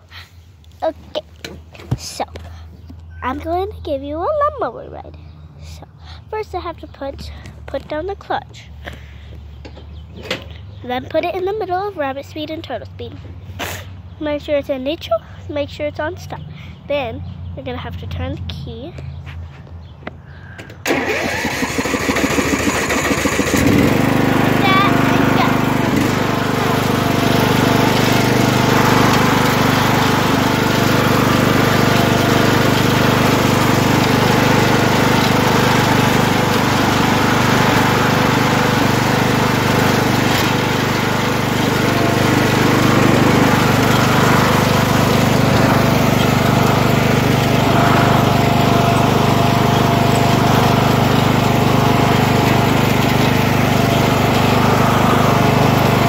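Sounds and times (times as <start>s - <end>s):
riding lawn mower engine running: 20.6s - 56.0s.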